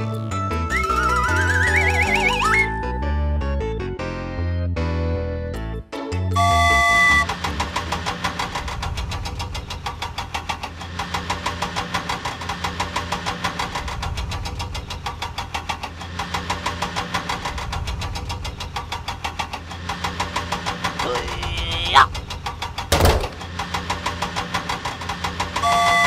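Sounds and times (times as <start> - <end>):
engine running with knocking: 6.4 - 26.0.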